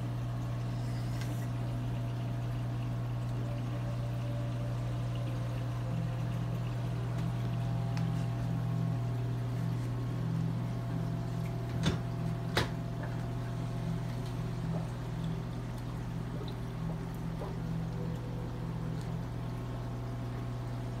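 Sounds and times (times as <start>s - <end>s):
aquarium pumps humming: 0.0s - 21.0s
water flowing and trickling: 0.0s - 21.0s.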